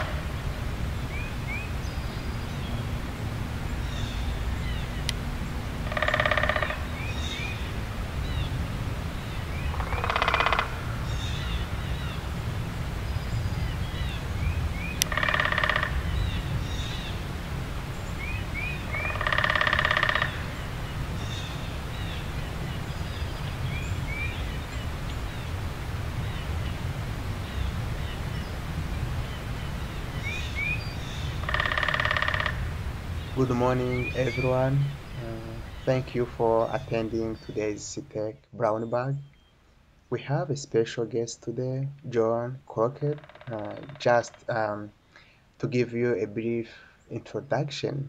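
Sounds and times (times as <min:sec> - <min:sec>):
loud bird call: 0:00.0 - 0:37.8, 0:43.1 - 0:45.3
steady low rumble: 0:00.0 - 0:39.4
birds chirping and singing: 0:00.0 - 0:39.6, 0:43.0 - 0:44.8.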